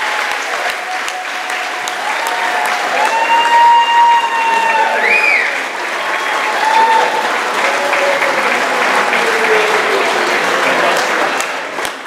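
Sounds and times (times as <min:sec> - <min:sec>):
shouts and whoops: 0:00.0 - 0:10.2
crowd applauding: 0:00.0 - 0:12.0.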